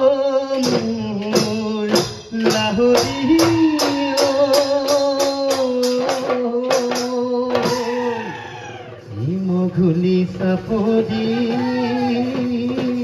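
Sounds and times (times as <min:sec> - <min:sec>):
drums beaten in fast rhythm: 0:00.0 - 0:13.0.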